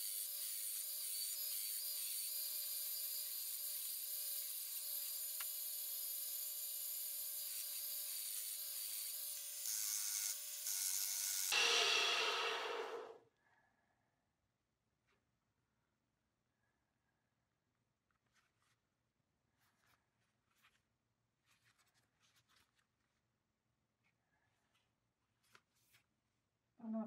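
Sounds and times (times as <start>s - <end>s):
electric grinder whining: 0.0s - 13.1s.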